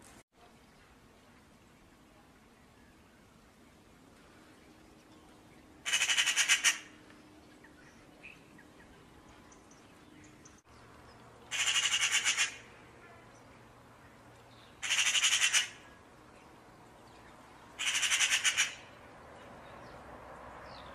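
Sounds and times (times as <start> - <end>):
magpie chattering: 5.9 - 7.0, 11.5 - 12.7, 14.8 - 15.8, 17.8 - 18.9.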